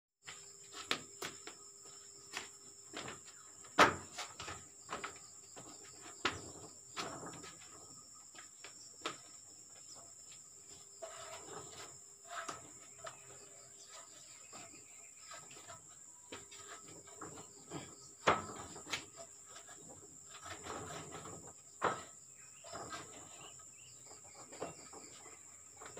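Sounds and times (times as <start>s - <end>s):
insects droning: 0.2s - 25.9s
ladder rungs knocking and rattling: 2.3s - 8.0s, 11.0s - 25.9s.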